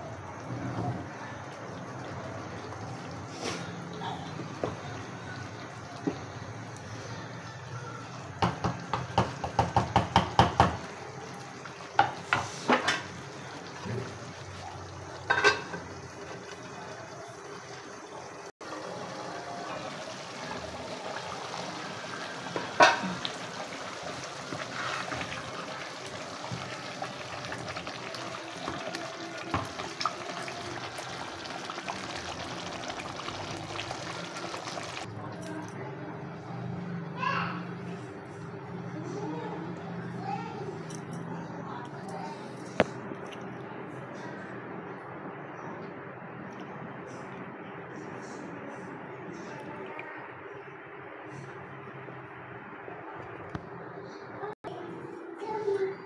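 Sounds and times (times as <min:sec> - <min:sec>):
sauce simmering and bubbling: 0:08.0 - 0:35.1
wooden spatula knocking on pan: 0:08.4 - 0:10.8.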